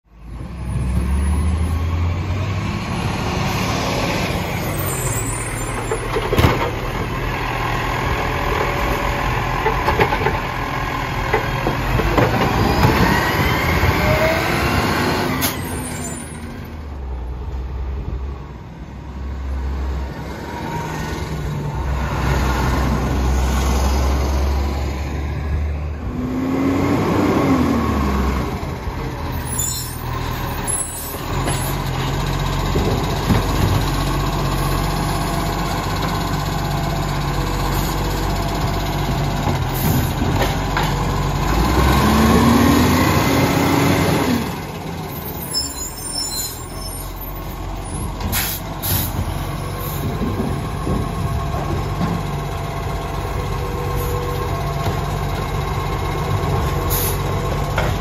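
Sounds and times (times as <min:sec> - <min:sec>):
garbage truck diesel engine: 0:00.0 - 0:58.0
air brakes hissing: 0:48.3 - 0:50.1, 0:56.9 - 0:57.3.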